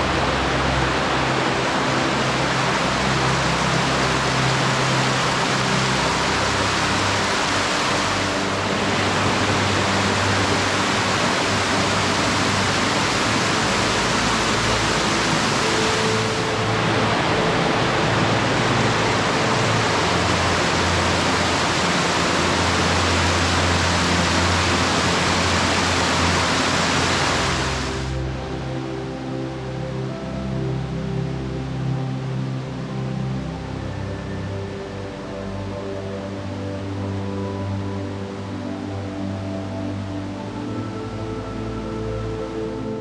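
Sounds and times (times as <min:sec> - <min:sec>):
soft background music: 0:00.0 - 0:43.0
water rushing: 0:00.0 - 0:43.0.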